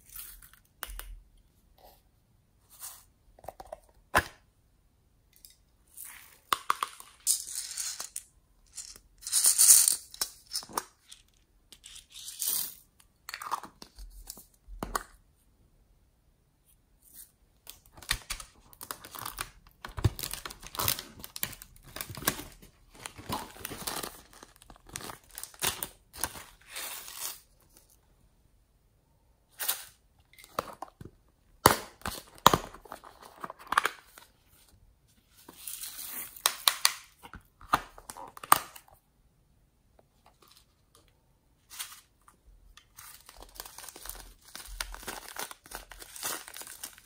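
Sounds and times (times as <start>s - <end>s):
plastic packets crinkling: 18.0s - 27.4s, 42.9s - 47.0s.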